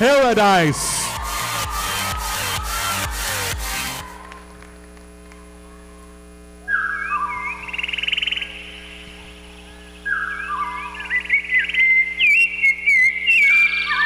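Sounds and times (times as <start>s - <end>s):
sound system hum: 0.0s - 14.0s
bird-like whistled calls: 6.6s - 14.0s.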